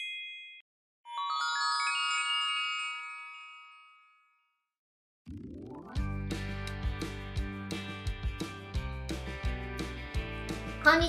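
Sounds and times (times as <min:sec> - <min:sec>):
magic sparkle chime: 0:00.0 - 0:04.4.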